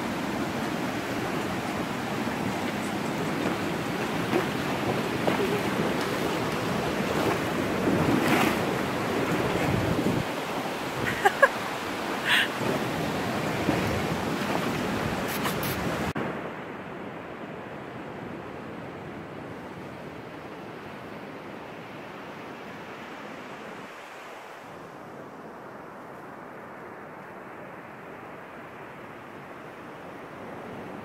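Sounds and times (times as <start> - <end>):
stream water rushing: 0.0 - 16.5
horse splashing through water: 0.2 - 16.1.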